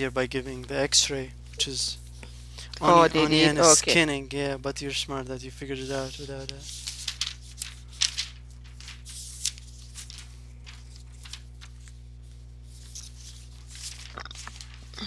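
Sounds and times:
steady low hum: 0.0 - 15.0
rustling: 6.0 - 15.0.

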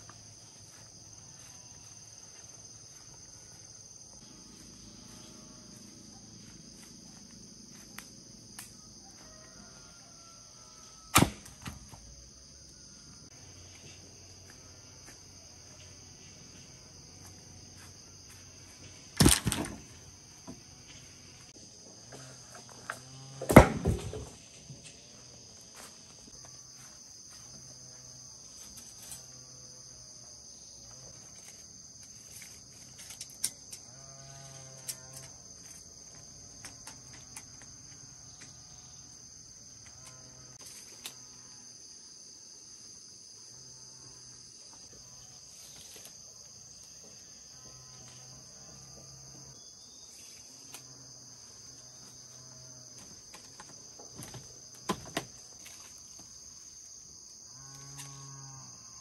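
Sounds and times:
high insect chirring: 43.8 - 59.0.

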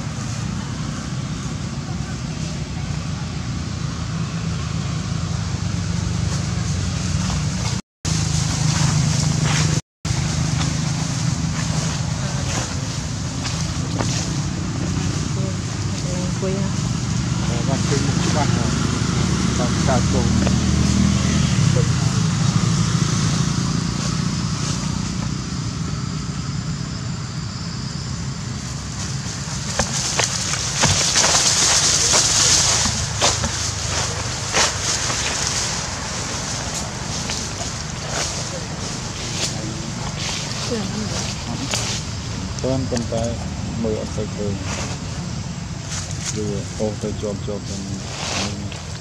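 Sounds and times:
low rumbling hum: 0.0 - 49.0
dry leaves crackling: 6.1 - 22.8, 28.5 - 49.0.

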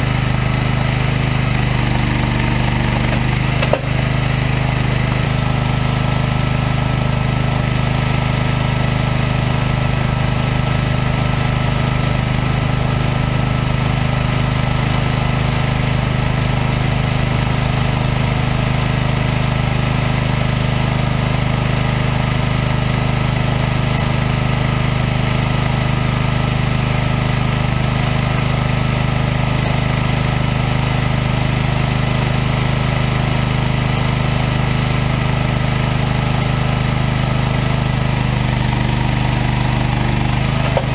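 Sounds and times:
machinery engine humming: 0.0 - 7.1, 40.3 - 40.9.

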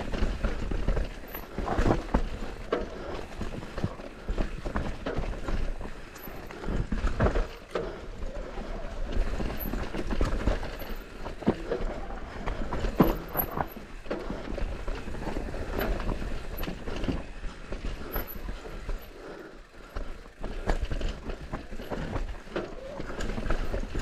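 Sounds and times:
bike tyres on dirt: 0.0 - 24.0
bike frame clatter: 9.0 - 17.3.

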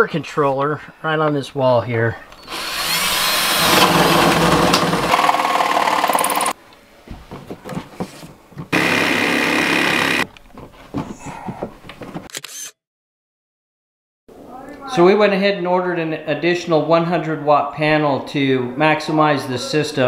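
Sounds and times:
cordless drill boring wood: 2.4 - 6.6, 8.7 - 10.2.

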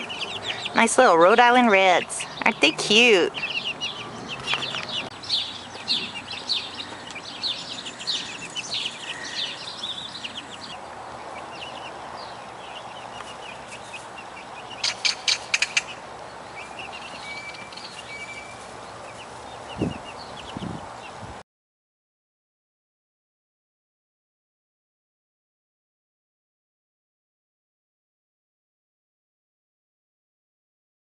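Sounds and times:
chicks peeping: 0.0 - 21.3.

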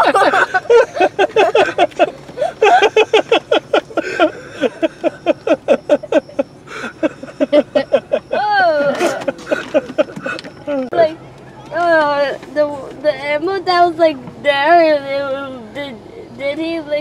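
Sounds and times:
person laughing heartily: 0.0 - 10.8.

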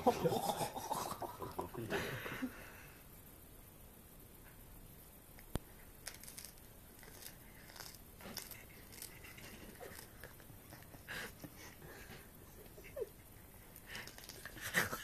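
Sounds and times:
cat chewing and crunching: 6.0 - 12.3, 13.6 - 15.0.

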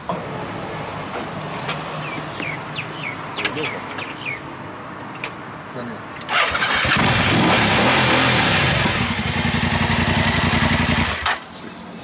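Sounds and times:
motorcycle engine starting and idling: 6.2 - 11.6.

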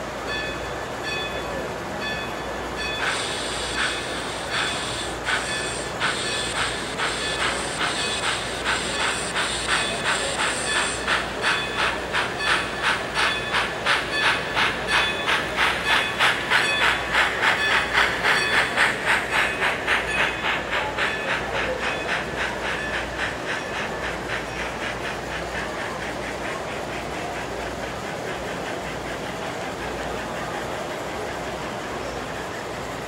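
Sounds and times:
model steam locomotive chuffing: 0.0 - 33.0
high hiss: 3.0 - 24.4
steady hiss: 3.0 - 31.7.

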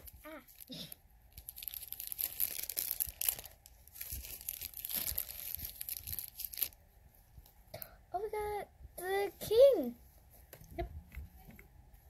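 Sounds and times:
foil bag crinkling and tearing: 0.0 - 6.8.

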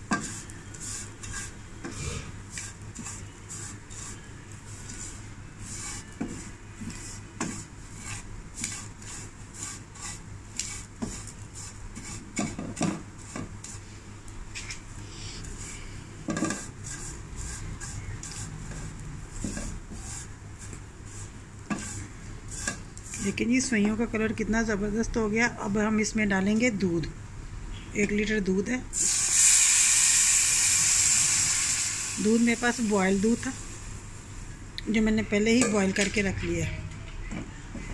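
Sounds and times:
wooden spatula scraping a pan: 0.0 - 14.0, 14.6 - 24.1.

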